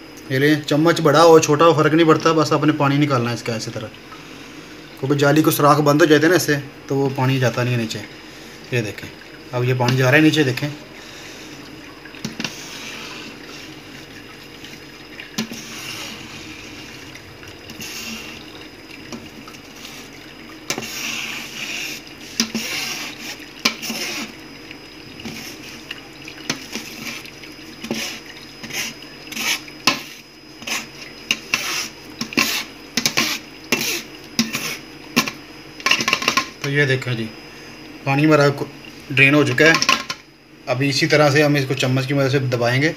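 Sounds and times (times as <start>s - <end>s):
liquid trickling through strainer: 7.0s - 36.9s.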